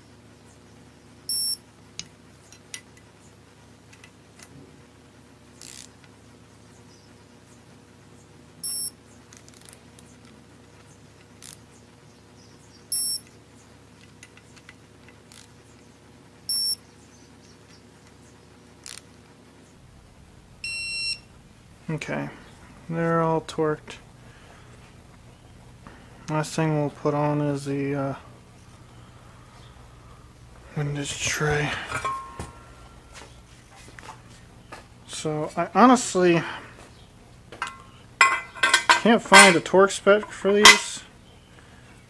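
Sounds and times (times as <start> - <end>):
torque wrench beeping: 1.3 - 1.6, 8.6 - 8.9, 12.9 - 13.3, 16.5 - 16.8.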